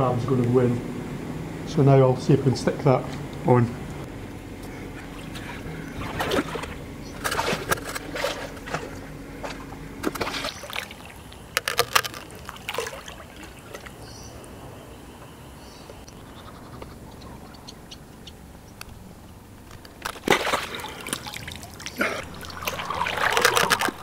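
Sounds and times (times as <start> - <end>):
faint low hum: 0.0 - 24.0
pool water splashing: 4.1 - 15.2, 17.3 - 24.0.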